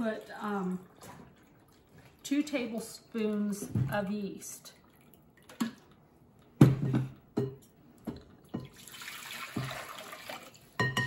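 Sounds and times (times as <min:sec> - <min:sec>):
glassware knocking and clinking: 0:06.6 - 0:08.8, 0:10.8 - 0:11.0
water pouring into glass bowl: 0:08.6 - 0:10.8.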